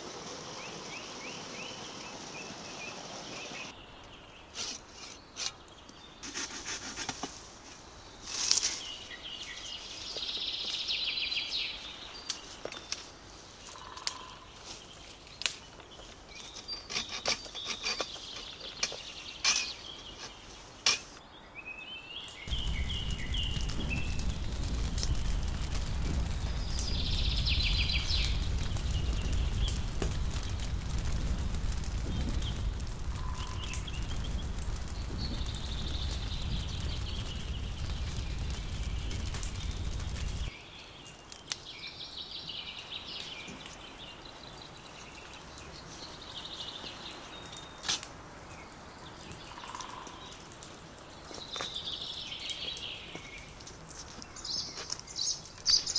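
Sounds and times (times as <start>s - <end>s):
wood fire rumbling: 22.5s - 41.5s.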